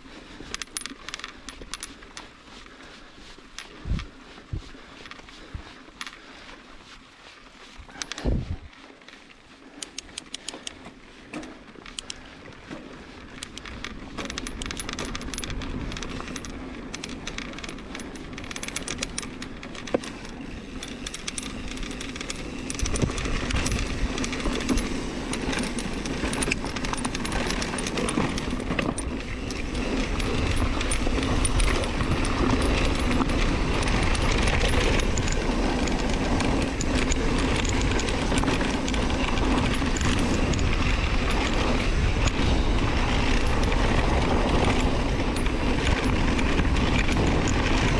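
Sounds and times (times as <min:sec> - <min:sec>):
bike metal clicking and rattling: 0:00.0 - 0:06.5, 0:07.9 - 0:47.9
tyre noise on dirt: 0:00.0 - 0:47.9
wind buffeting microphone: 0:03.8 - 0:04.7, 0:07.9 - 0:08.7, 0:14.6 - 0:47.9.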